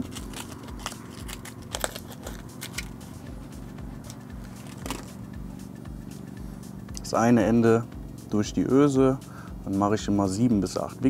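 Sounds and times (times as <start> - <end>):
plastic packet crinkling: 0.0 - 2.9.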